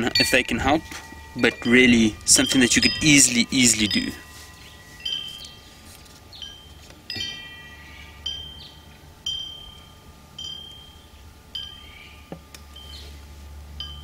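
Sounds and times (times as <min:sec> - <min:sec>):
chimes ringing: 0:00.0 - 0:14.0
steady low hum: 0:00.0 - 0:14.0.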